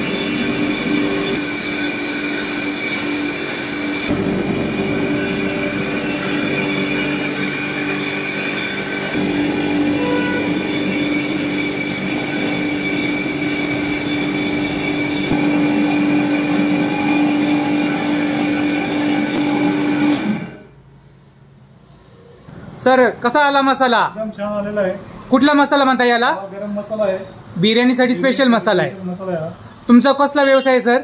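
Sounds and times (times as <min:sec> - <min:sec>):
mixer grinder motor whine: 0:00.0 - 0:20.7.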